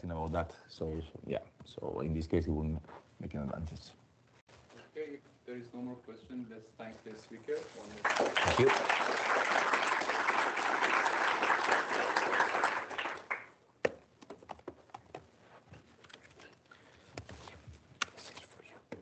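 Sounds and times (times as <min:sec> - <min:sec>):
audience applauding: 0:08.0 - 0:13.6.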